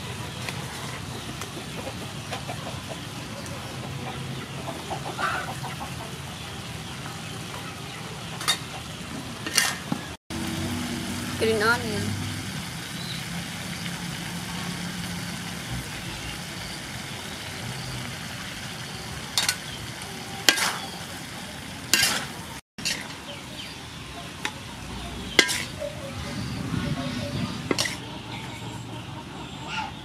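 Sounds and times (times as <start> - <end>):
food sizzling in a wok: 6.4 - 25.9
metal spatula scraping a wok: 9.4 - 9.9, 20.4 - 21.0, 21.9 - 23.3, 25.3 - 25.8, 27.3 - 28.1.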